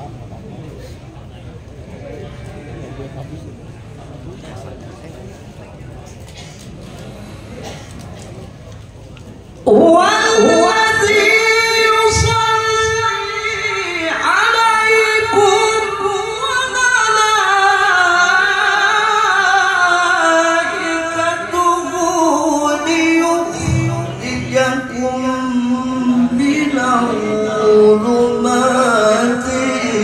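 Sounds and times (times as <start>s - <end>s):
man chanting into microphone: 9.7s - 30.0s.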